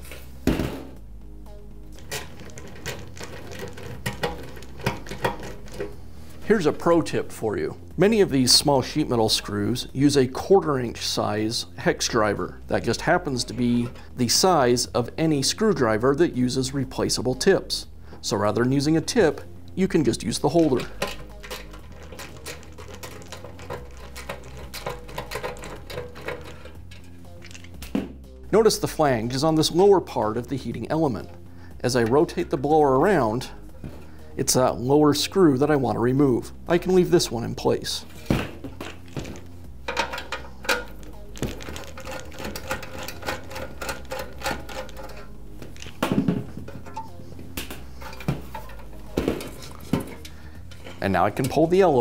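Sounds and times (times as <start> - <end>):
small metal clicks and scrapes: 2.0 - 6.0, 20.6 - 27.8, 39.9 - 46.0, 48.0 - 51.6.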